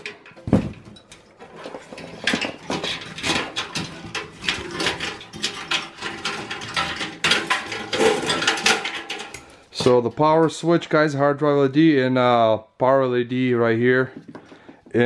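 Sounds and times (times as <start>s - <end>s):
metal chassis rattling and clicking: 0.0s - 10.0s.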